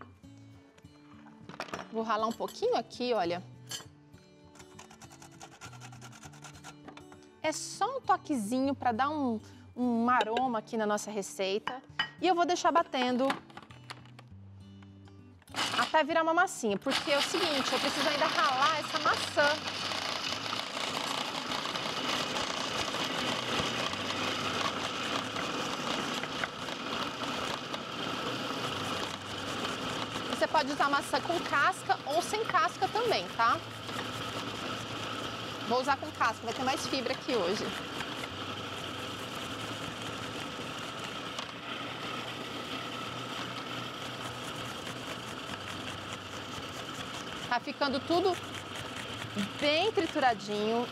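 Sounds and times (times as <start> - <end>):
apple scraping on grater: 4.6 - 6.9, 15.5 - 16.0, 16.9 - 50.9
blade grinding nuts: 15.5 - 16.0, 16.9 - 50.9
food processor motor running: 15.5 - 16.0, 16.9 - 50.9.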